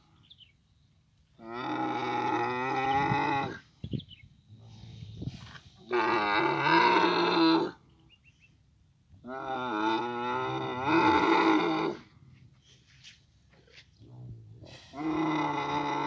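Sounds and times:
camels calling: 1.4 - 3.8, 9.2 - 13.1.

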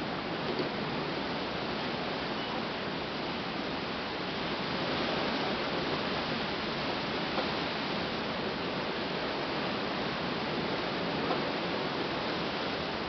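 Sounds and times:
gusty wind through trees: 0.0 - 13.0.

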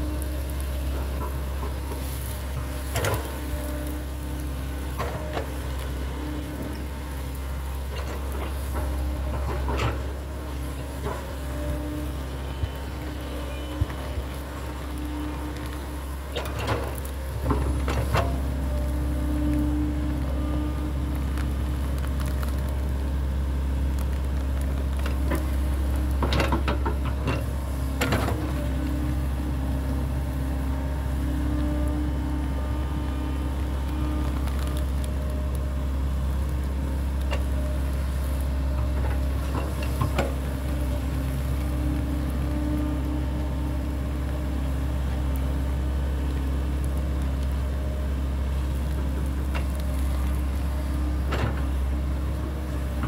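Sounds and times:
excavator diesel engine running: 0.0 - 53.0.

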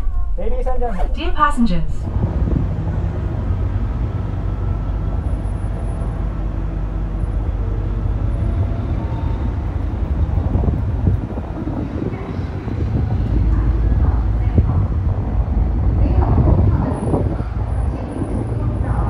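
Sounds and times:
diesel engine idling: 2.1 - 19.0.

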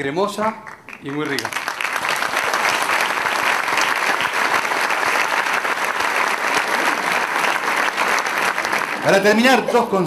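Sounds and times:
audience applauding: 0.6 - 10.0.

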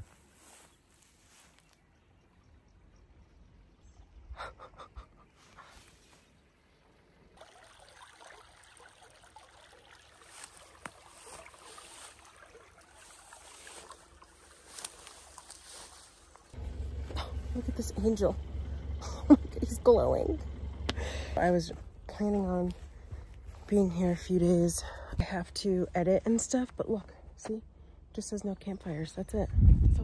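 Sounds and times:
creek trickling: 2.3 - 26.5
low wind rumble: 16.6 - 25.3, 29.3 - 30.0.

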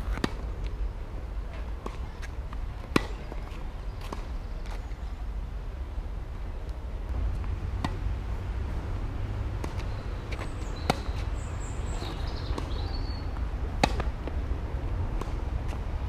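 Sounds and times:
tennis ball hit by racket: 0.0 - 0.4, 1.7 - 4.4, 7.4 - 8.1, 9.5 - 11.4, 12.0 - 14.4, 15.0 - 15.8
wind rumble on microphone: 0.0 - 16.0.

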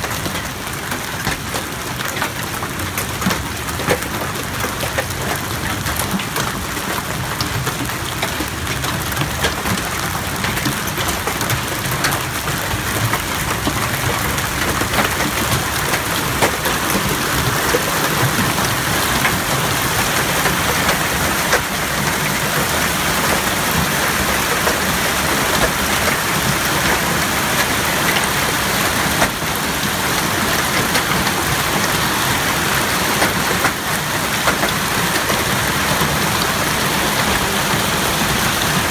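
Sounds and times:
hailstones ticking: 0.0 - 38.9.

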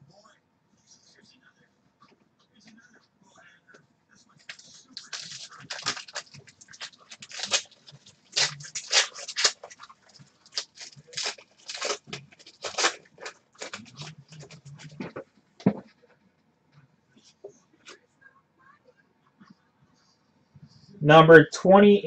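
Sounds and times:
cards rustling: 4.4 - 15.8
wrapper crackling and tearing: 4.5 - 14.9.

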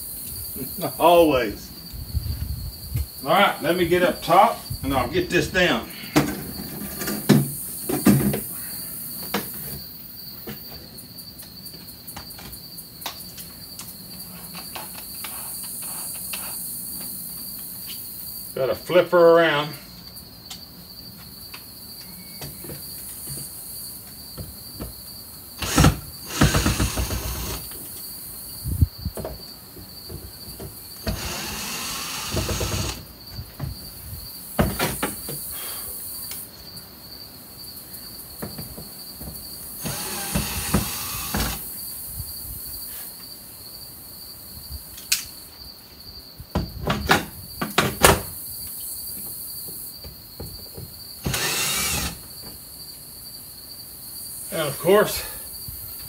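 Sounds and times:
insects chirping: 0.0 - 56.0
cordless drill backing out screws: 25.6 - 27.6, 31.0 - 33.0, 39.8 - 41.6, 51.2 - 52.2.

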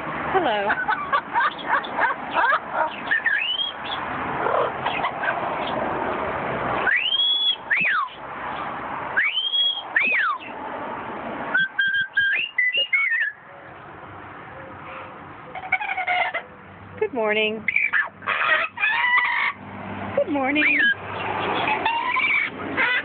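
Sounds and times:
parrot raspy chatter: 0.6 - 5.8, 15.5 - 16.5, 17.7 - 19.6, 20.5 - 23.0
parrot whistling: 3.0 - 4.0, 6.8 - 8.2, 9.2 - 10.5, 11.5 - 13.4, 17.7 - 19.3.

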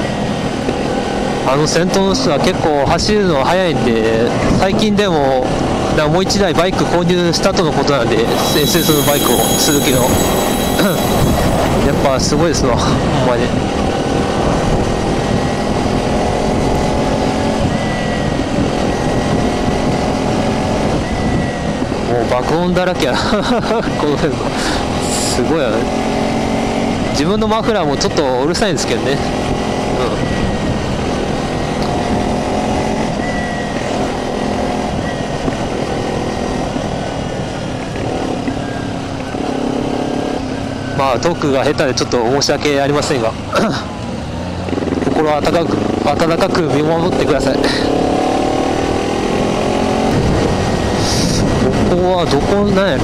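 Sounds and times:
other motorcycles riding: 0.0 - 53.0
wind rush: 8.1 - 14.9
wind rushing over microphone: 50.0 - 53.0.

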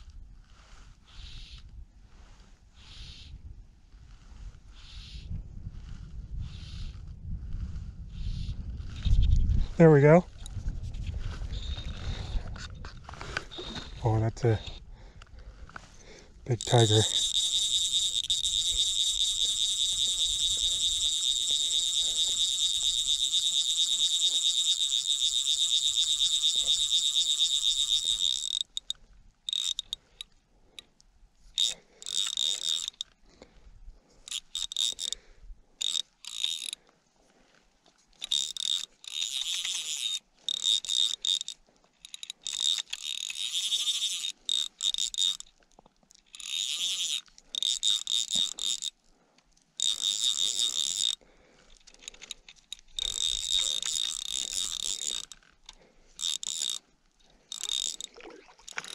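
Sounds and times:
fishing reel drag whining: 0.5 - 1.7, 11.4 - 14.8, 16.5 - 30.9, 31.5 - 33.2, 34.2 - 36.8, 38.2 - 45.6, 46.2 - 49.0, 49.8 - 56.8, 57.5 - 58.9.

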